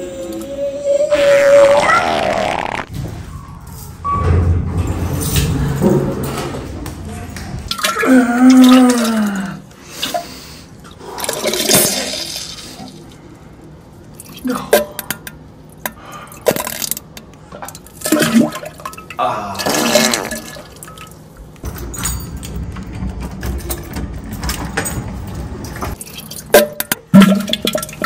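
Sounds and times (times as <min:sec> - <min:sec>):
toilet flushing: 0:11.1 - 0:13.0, 0:19.6 - 0:21.1.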